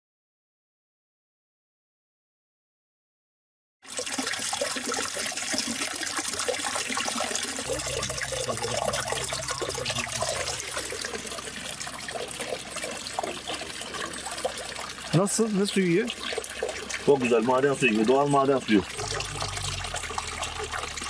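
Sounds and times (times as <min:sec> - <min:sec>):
water pouring into plastic bottle: 0:03.8 - 0:21.0
water splashing from fountain spout: 0:03.8 - 0:21.0
low hum: 0:07.5 - 0:14.9, 0:18.9 - 0:21.0.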